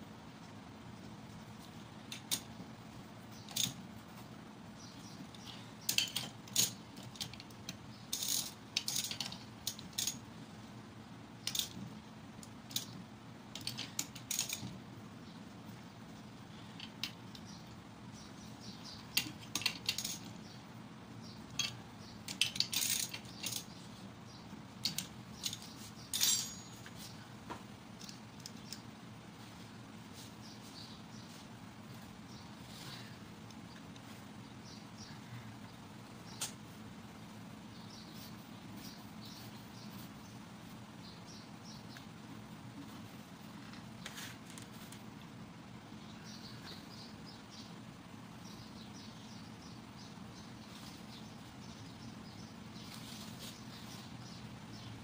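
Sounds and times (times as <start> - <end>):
metal tools clinking: 19.1 - 20.3, 21.6 - 23.8, 24.8 - 27.2.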